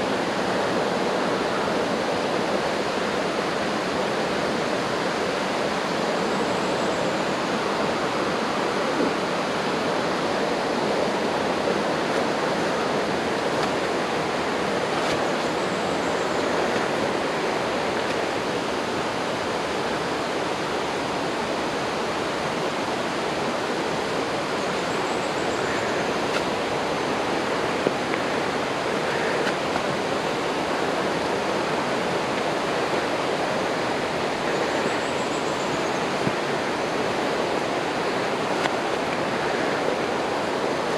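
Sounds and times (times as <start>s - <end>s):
running water rushing: 0.0s - 40.9s.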